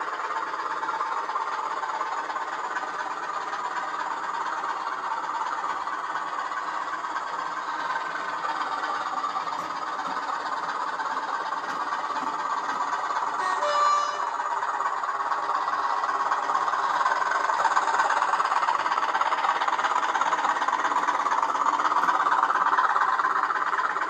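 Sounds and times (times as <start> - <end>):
model train running on track: 0.0 - 24.0.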